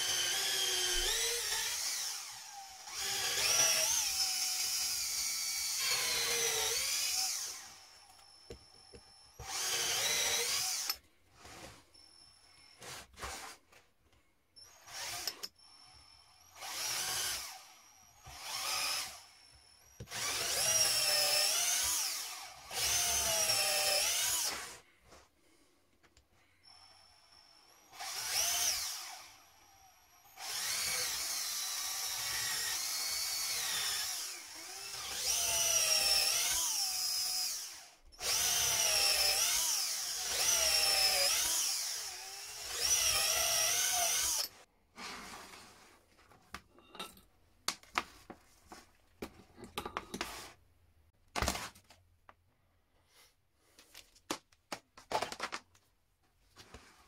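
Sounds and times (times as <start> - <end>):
cordless drill boring into wood: 0.0 - 11.7, 14.6 - 24.8, 26.6 - 44.7
knocks and clicks of tools: 49.2 - 50.5.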